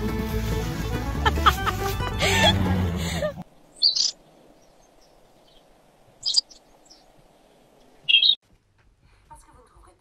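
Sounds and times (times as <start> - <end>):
faint background noise: 3.1 - 10.0
jackdaws calling: 3.5 - 8.4.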